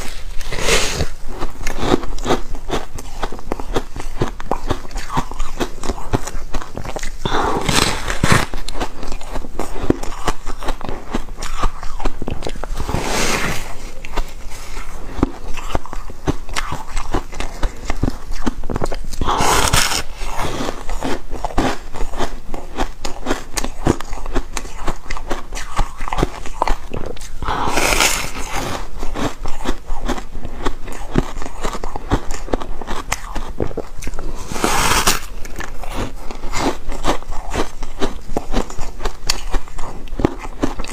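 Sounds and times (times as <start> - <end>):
foam ice crunching: 34.4 - 35.3.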